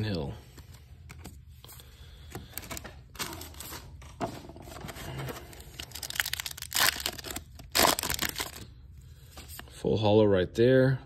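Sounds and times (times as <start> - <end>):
wrapper rustling and crinkling: 4.7 - 8.7
wrapper ripping open: 5.5 - 8.7.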